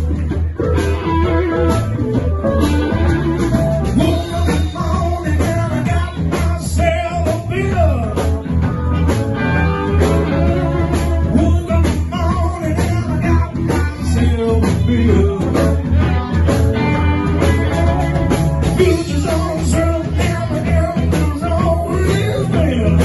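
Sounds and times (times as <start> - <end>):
drums: 0.0 - 23.0
electric guitar: 0.0 - 23.0
keyboard: 0.0 - 23.0
person singing into a microphone: 4.0 - 8.2, 11.3 - 15.8, 18.8 - 23.0.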